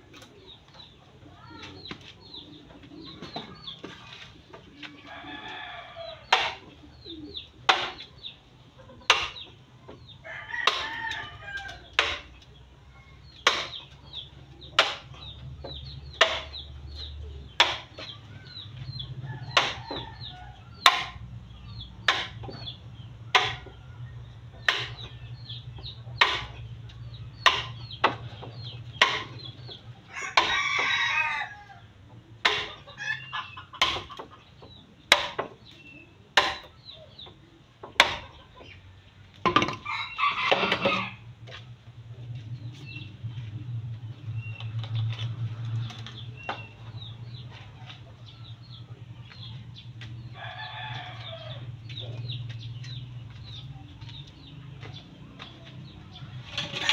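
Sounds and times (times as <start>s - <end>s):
chickens clucking: 0.0s - 56.9s
hand tool knocking bamboo: 17.6s - 17.9s, 20.9s - 21.2s, 23.3s - 23.7s, 27.4s - 28.2s, 29.0s - 29.4s, 35.1s - 35.5s, 36.4s - 36.7s, 37.9s - 38.3s
rooster crowing: 30.1s - 31.8s, 50.4s - 51.7s.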